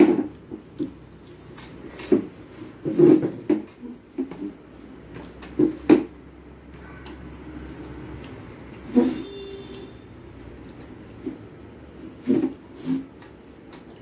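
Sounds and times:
fingers mixing food on steel plate: 0.2 - 2.8, 4.2 - 14.0
chewing and mouth noises: 0.3 - 2.0, 6.6 - 9.0.

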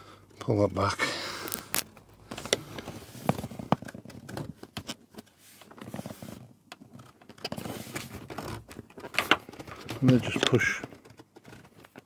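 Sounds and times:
cable scraping through plastic: 5.6 - 12.0.

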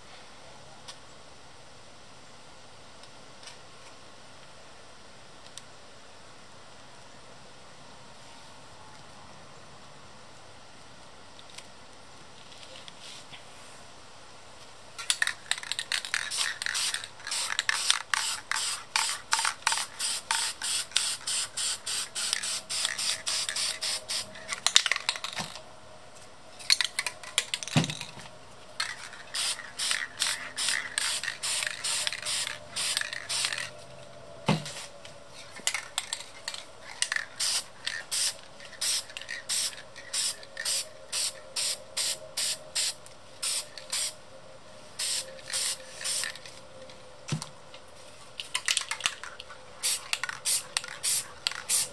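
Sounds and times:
spray paint can hissing: 15.0 - 25.4, 28.8 - 33.7, 35.7 - 44.2, 45.0 - 46.4, 49.8 - 51.9.

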